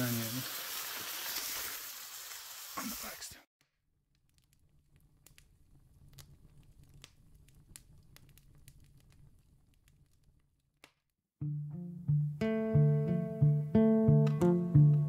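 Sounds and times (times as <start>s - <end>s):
campfire crackling and popping: 0.0s - 3.2s, 4.0s - 11.1s
acoustic guitar music: 11.4s - 15.0s.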